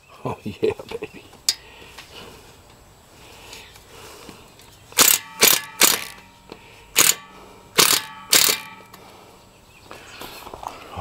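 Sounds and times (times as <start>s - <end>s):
cordless driver bursts: 5.0s - 6.3s, 6.9s - 9.0s
metallic ring: 5.0s - 9.0s.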